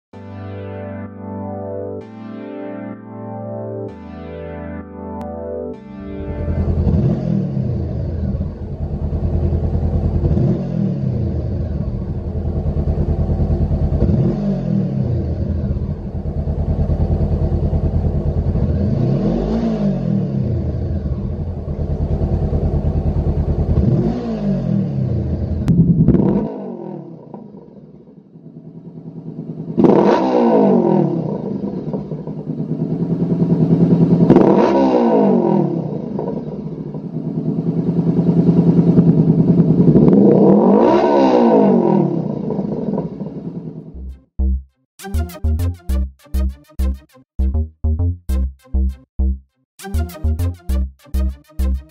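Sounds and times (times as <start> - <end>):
motorcycle engine revving: 6.2 - 44.4.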